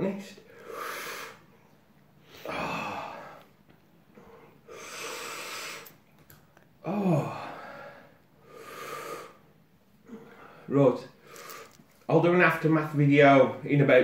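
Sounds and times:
man breathing hard: 0:00.5 - 0:01.6, 0:02.3 - 0:03.5, 0:04.1 - 0:06.0, 0:06.9 - 0:11.8
man groaning: 0:02.4 - 0:03.3, 0:06.8 - 0:07.6.

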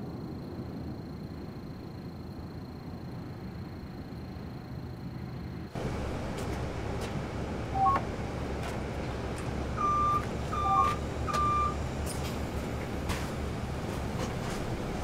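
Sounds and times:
low rumble of bus interior: 0:00.0 - 0:15.0
card reader beeping: 0:07.7 - 0:08.1, 0:09.8 - 0:11.8.

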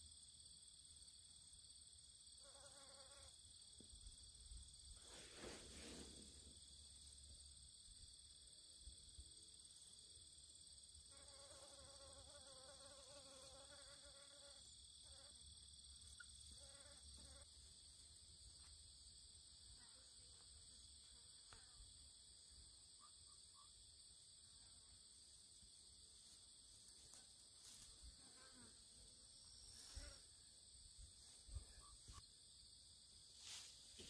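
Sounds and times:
flying insect buzzing whine: 0:02.2 - 0:07.4, 0:10.8 - 0:19.1, 0:24.6 - 0:32.2.

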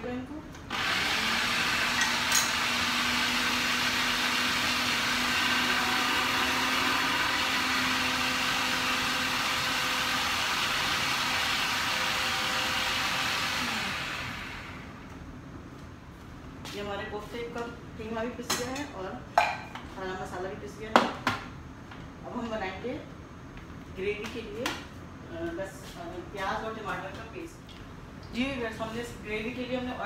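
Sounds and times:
food processor motor grinding: 0:00.7 - 0:15.0.

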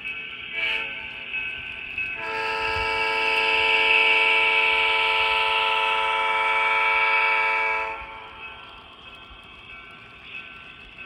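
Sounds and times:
model train diesel horn blast: 0:00.5 - 0:01.1, 0:02.2 - 0:08.2.

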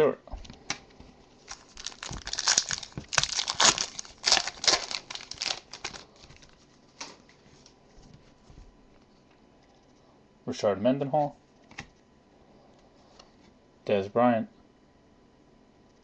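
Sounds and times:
foil pack tearing and crinkling: 0:01.5 - 0:06.6.

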